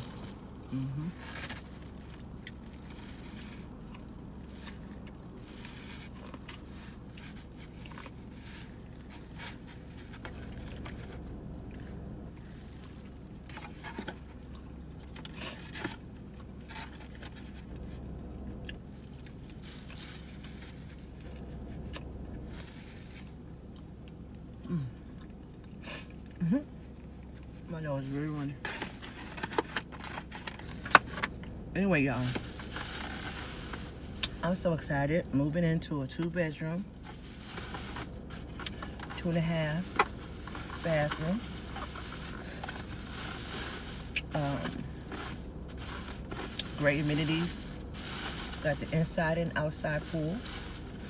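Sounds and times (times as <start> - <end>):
person chewing corn on the cob: 0.0 - 17.9, 18.5 - 20.6, 23.6 - 27.5.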